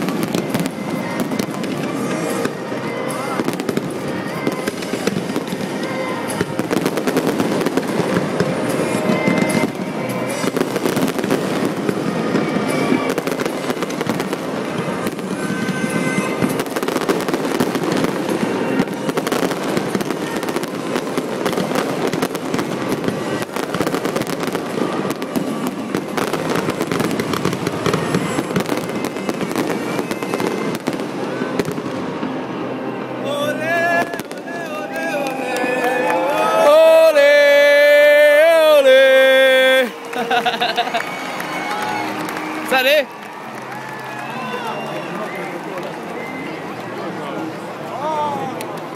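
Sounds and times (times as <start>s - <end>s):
fireworks crackling: 0.0s - 48.9s.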